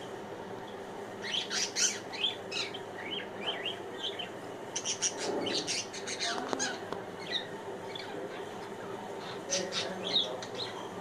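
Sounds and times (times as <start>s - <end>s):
budgerigar chirping: 1.2s - 8.4s.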